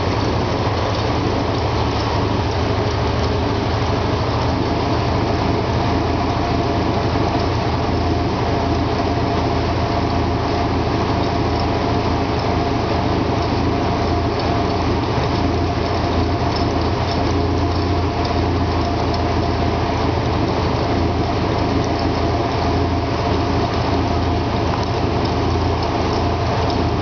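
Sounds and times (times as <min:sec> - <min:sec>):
helicopter engine running: 0:00.0 - 0:04.6.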